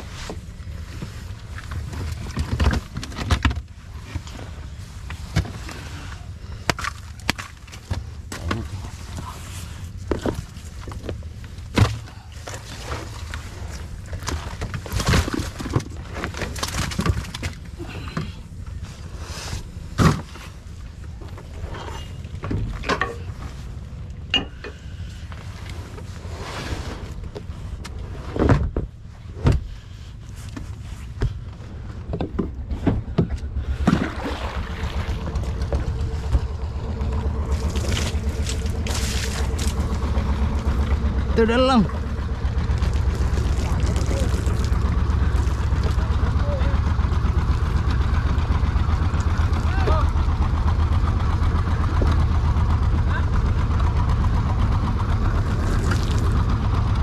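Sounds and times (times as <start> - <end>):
boat engine humming: 0.0 - 57.0
knocks and thumps: 32.1 - 34.1.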